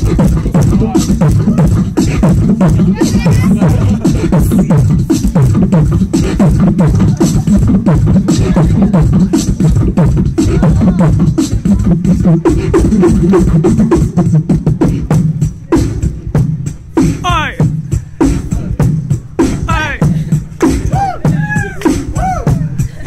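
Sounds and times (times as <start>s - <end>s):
beatboxing into microphone: 0.0s - 23.0s
low bass line: 0.0s - 23.0s.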